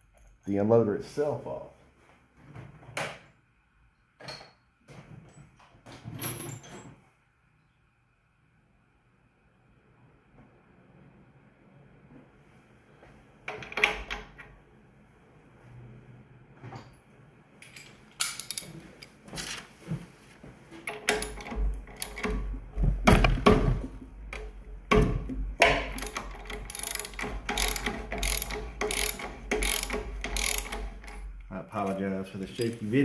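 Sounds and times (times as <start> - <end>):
metal clatter: 20.8 - 25.0
ratchet wrench clicking: 25.7 - 31.2.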